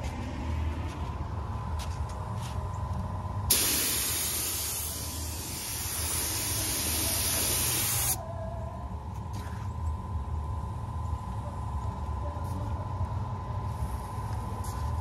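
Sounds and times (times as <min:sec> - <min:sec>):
air spray gun hissing: 0:03.5 - 0:08.2.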